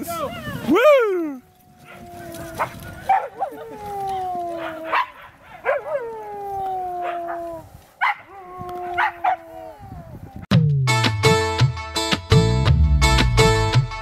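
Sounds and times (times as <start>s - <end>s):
dogs yelping and howling: 1.5s - 10.4s.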